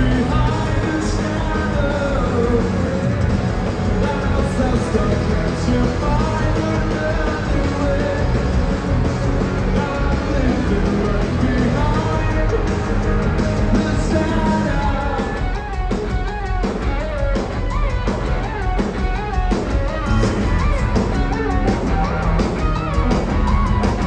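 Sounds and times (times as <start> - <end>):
rock band playing live: 0.0 - 24.0.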